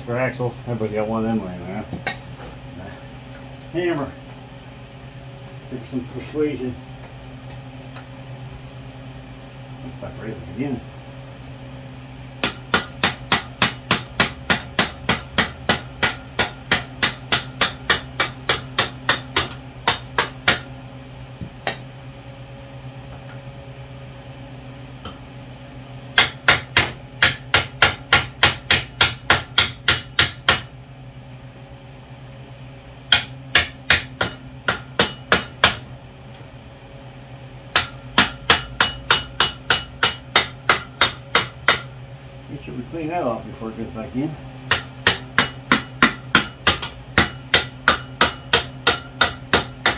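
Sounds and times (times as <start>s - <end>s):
hammer striking metal: 12.4s - 20.7s, 21.6s - 21.8s, 26.2s - 30.7s, 33.1s - 35.9s, 37.7s - 42.0s, 44.7s - 49.9s.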